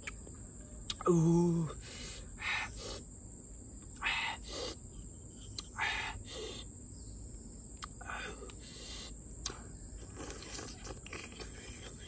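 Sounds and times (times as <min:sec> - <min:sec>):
breathy mouth sounds: 0:05.4 - 0:06.7.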